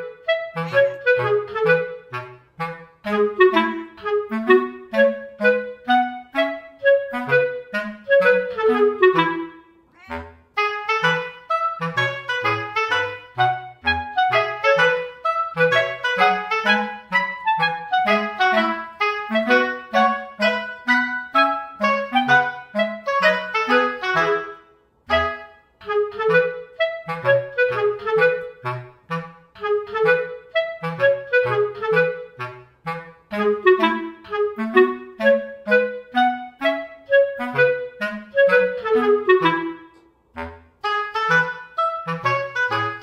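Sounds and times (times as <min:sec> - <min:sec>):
instrumental background music: 0:00.0 - 0:43.0.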